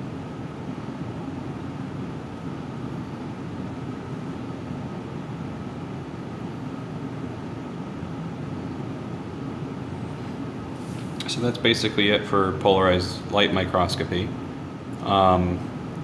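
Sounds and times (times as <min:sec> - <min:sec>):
fan hum: 0:00.0 - 0:16.0.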